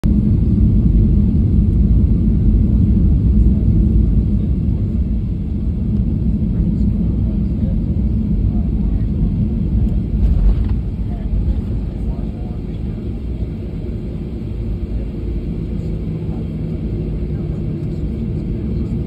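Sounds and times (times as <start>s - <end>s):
aircraft cabin rumble: 0.0s - 19.0s.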